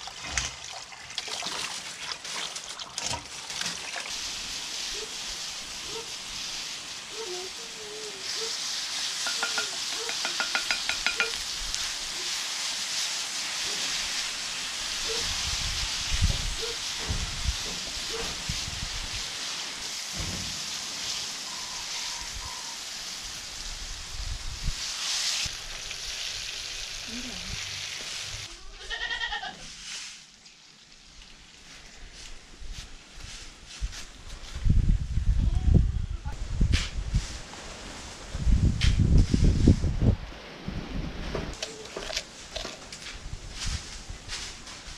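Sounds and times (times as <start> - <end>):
banana slices sizzling in a pan: 3.6 - 30.3.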